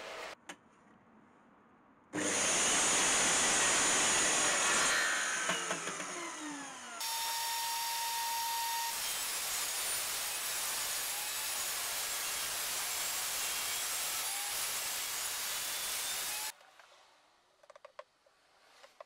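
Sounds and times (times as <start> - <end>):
table saw whining: 2.2 - 16.5
chop saw cutting wood: 2.2 - 16.6.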